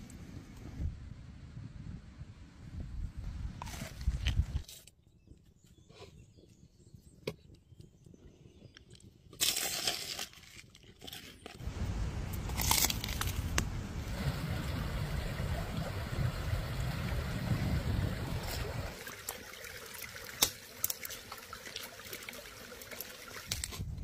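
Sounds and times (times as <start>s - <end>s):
roasted food crust crunching: 9.3s - 11.6s, 12.3s - 13.7s
stream rushing: 11.6s - 23.6s.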